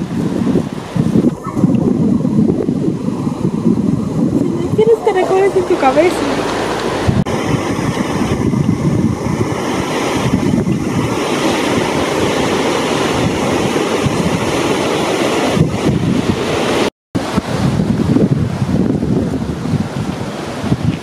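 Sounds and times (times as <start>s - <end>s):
ocean waves breaking on beach: 0.0s - 21.0s
wind buffeting microphone: 0.0s - 21.0s.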